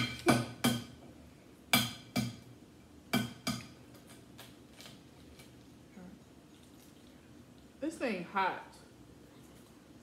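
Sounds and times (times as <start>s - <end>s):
tableware knocking and clinking: 0.0s - 1.0s.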